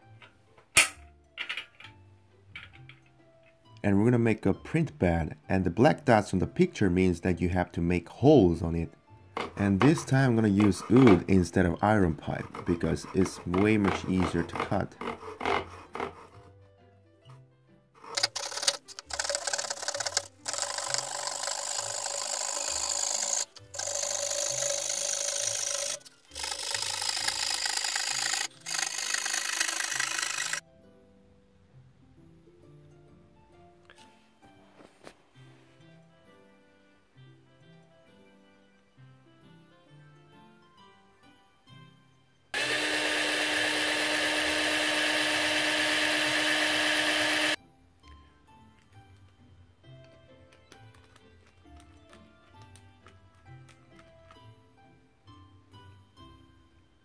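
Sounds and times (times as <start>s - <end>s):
faint background music: 0.0s - 57.0s
hand saw cutting wood: 9.4s - 16.5s, 18.0s - 30.6s, 42.6s - 47.6s
power drill boring through wood: 18.1s - 30.6s, 42.6s - 47.6s.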